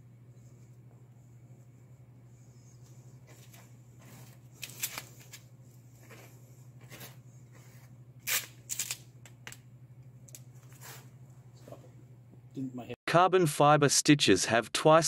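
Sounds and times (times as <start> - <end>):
steady low hum: 0.0 - 13.2.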